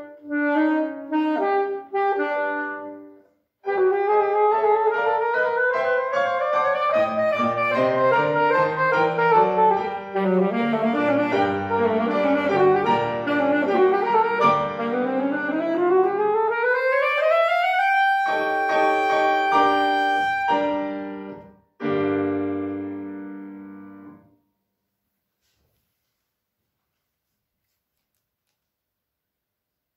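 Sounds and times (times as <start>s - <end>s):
saxophone: 0.0s - 21.5s
piano chords: 0.0s - 24.4s.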